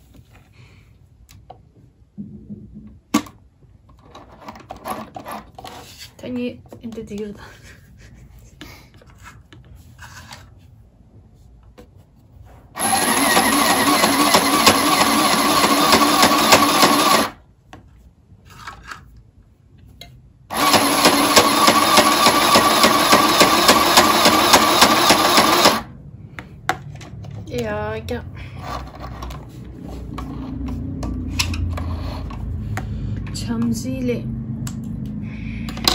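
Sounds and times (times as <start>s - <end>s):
sewing machine motor whir: 12.8s - 17.4s, 20.5s - 25.9s.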